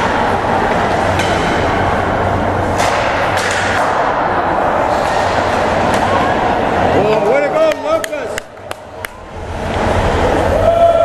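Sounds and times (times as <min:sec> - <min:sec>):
hockey sticks and puck knocking: 0:01.1 - 0:01.7, 0:02.7 - 0:04.1.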